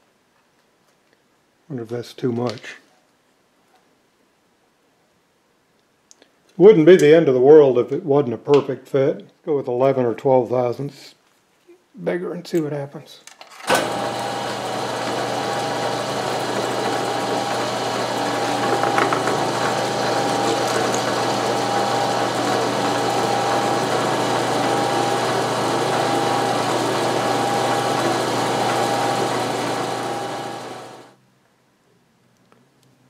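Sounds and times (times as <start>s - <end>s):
milling machine cutting metal: 13.7s - 31.2s.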